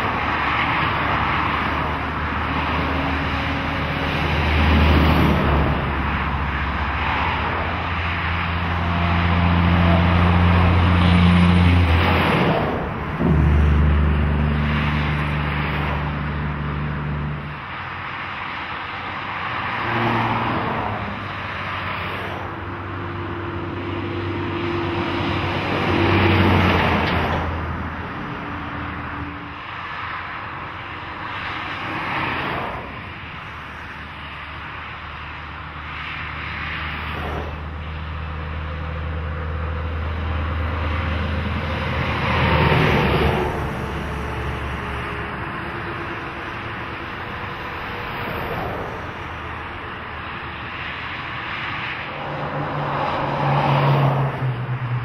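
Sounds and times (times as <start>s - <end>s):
low engine drone: 0.0s - 55.0s
trucks and cars passing: 0.0s - 55.0s.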